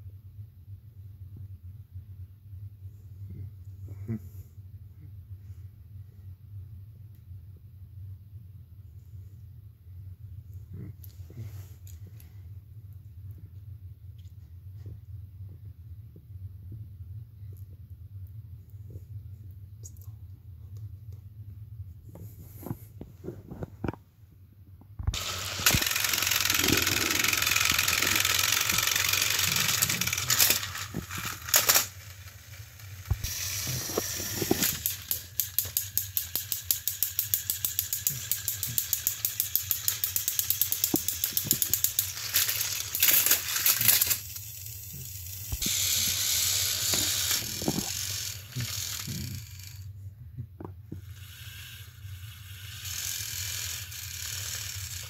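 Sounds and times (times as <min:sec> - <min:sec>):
toy train motors whirring: 0:25.0 - 0:49.9, 0:50.9 - 0:55.0
rapid regular clicking: 0:25.1 - 0:32.2.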